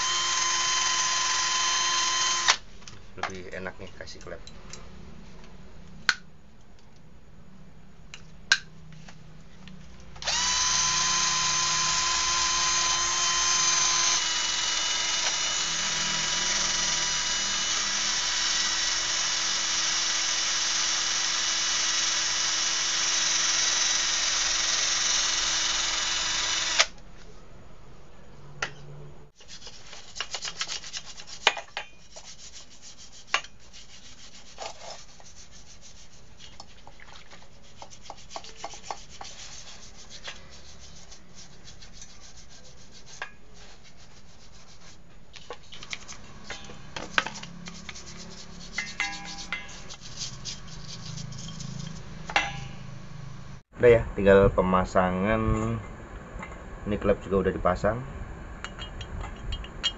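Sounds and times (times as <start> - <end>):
electric grinder whining: 0.0 - 2.6, 10.2 - 26.9
brush scrubbing metal: 29.4 - 52.6.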